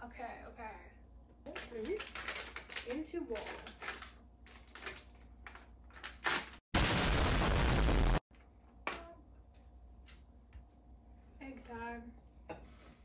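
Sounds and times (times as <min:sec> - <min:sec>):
harsh burst of noise: 0:06.7 - 0:08.2.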